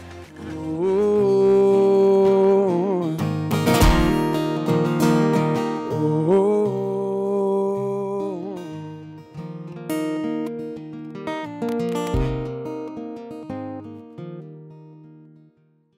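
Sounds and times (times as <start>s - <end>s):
strummed acoustic guitar: 0.0s - 15.9s
man singing: 0.2s - 4.6s, 5.7s - 9.2s.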